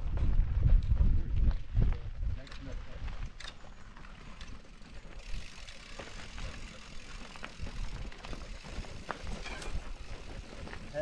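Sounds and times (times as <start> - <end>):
wind rumble: 0.0 - 5.2
bike tyres crunching on dirt: 0.0 - 11.0.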